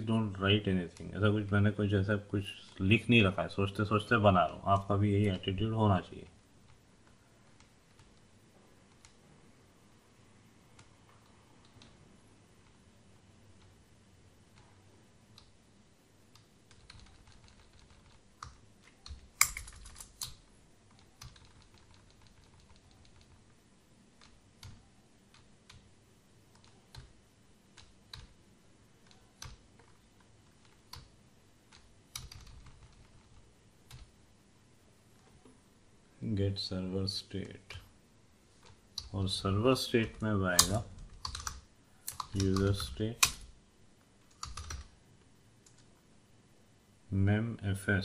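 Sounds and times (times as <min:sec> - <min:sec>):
typing on computer keyboard: 0:16.3 - 0:23.5, 0:26.5 - 0:28.4, 0:31.7 - 0:34.1, 0:40.6 - 0:43.4, 0:44.3 - 0:44.9.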